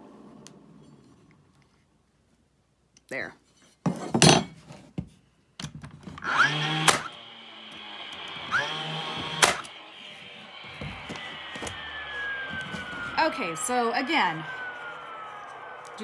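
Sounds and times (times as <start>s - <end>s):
brad nailer whine and snap: 6.1s - 16.0s.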